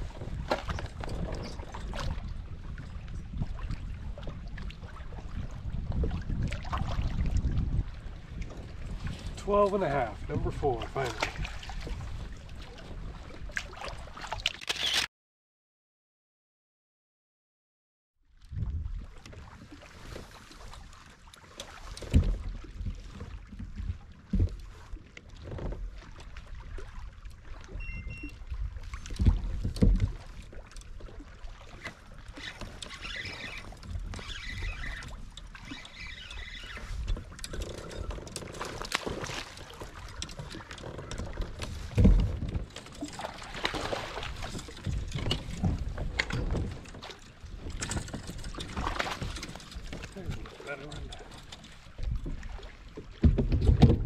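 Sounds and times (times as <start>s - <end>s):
wind on microphone: 0.0s - 13.6s, 18.5s - 20.0s, 40.3s - 50.5s, 51.9s - 52.6s
water lapping against kayak hull: 0.0s - 14.7s, 18.2s - 54.0s.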